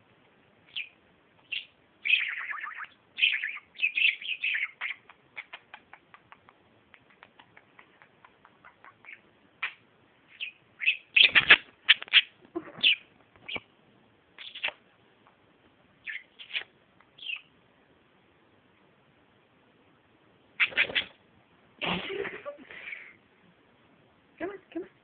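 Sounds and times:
budgerigars chirping: 0.7 - 6.0, 7.5 - 13.7, 14.4 - 14.8, 16.0 - 17.5, 20.6 - 21.2.

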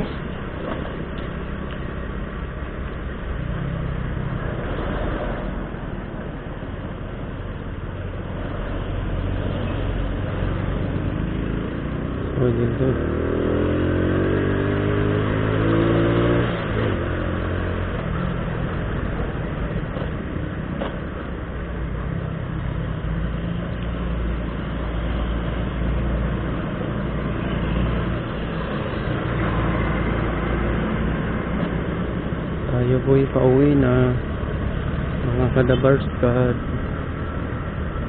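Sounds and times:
motorcycle engine accelerating: 9.0 - 20.2.

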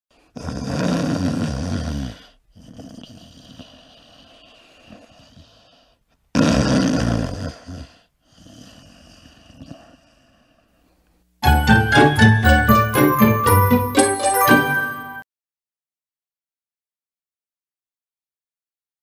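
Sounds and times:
quiet breath: 2.2 - 6.3, 7.8 - 11.2.

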